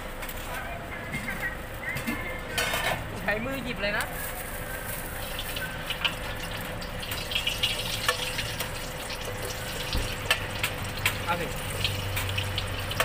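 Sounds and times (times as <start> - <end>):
food deep-frying in oil: 4.2 - 13.0.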